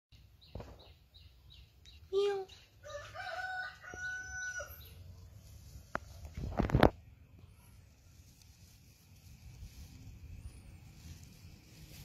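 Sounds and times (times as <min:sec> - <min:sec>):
rooster crowing: 0:02.8 - 0:05.0.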